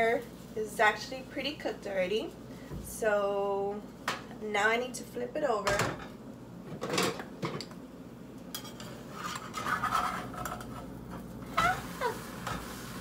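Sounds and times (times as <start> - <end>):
spatula scraping in frying pan: 8.6 - 13.0.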